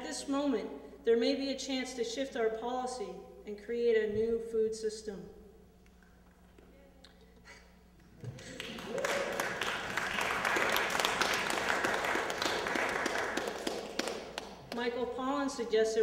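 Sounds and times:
audience applause: 8.2s - 14.6s.

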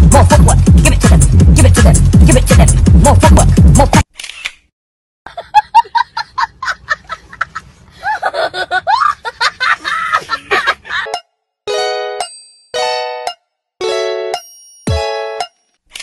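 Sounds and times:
electronic music with beat: 0.0s - 4.0s, 11.1s - 15.6s
high-pitched laughter: 5.3s - 11.2s.

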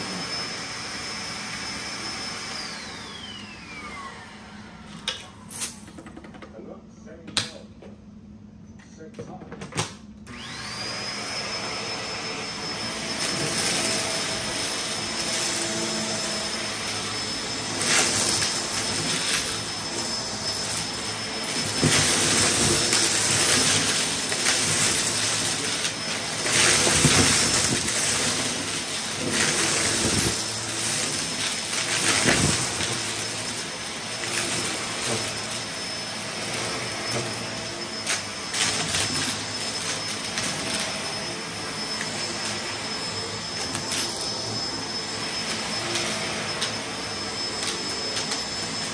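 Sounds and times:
vacuum cleaner motor whine: 0.0s - 6.4s, 10.2s - 48.9s
debris rattling in vacuum: 11.7s - 48.9s.

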